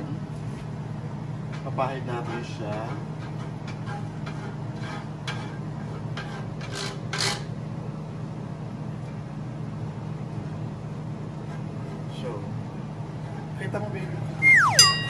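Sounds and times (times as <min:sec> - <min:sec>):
spatula scraping grill pan: 0:01.5 - 0:07.5
low hum: 0:14.4 - 0:15.0.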